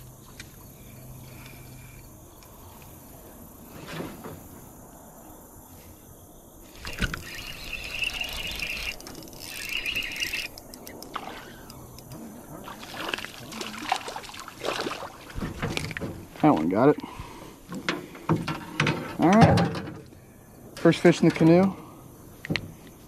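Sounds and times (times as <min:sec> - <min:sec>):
spinning reel cranking: 0:06.8 - 0:12.1
fish splashing at water surface: 0:12.6 - 0:15.8.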